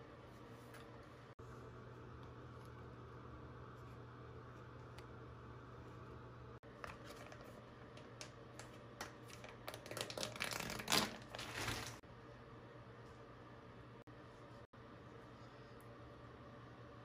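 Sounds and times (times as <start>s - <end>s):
plastic packet crinkling: 9.0s - 12.0s.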